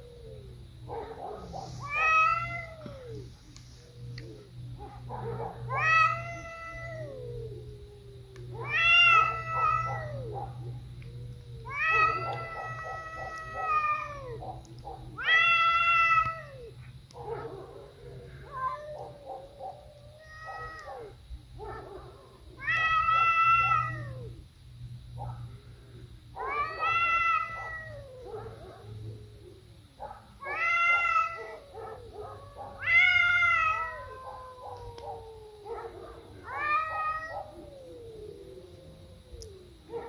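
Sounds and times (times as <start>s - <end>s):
cat low wavering calls: 0.0s - 21.8s, 22.4s - 24.4s, 26.3s - 29.7s, 30.4s - 40.0s
cat yowling: 1.8s - 3.3s, 5.1s - 17.2s, 18.3s - 21.9s, 22.6s - 24.4s, 26.3s - 29.3s, 30.4s - 40.0s.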